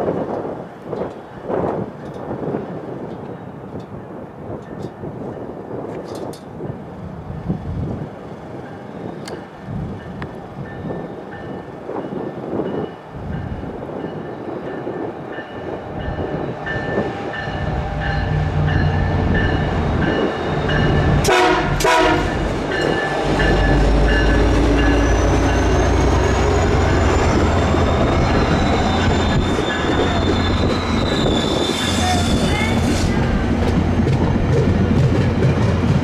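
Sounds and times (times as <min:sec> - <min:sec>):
locomotive bell ringing: 0:10.0 - 0:32.9
train horn blasts: 0:21.2 - 0:22.5.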